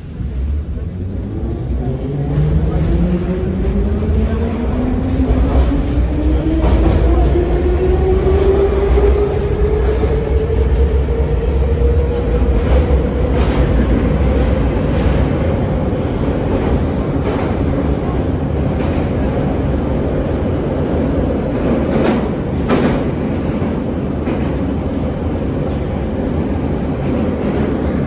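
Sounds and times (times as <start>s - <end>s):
low rumble of train wheels: 0.0s - 28.0s
rail joint clicks: 21.5s - 26.0s.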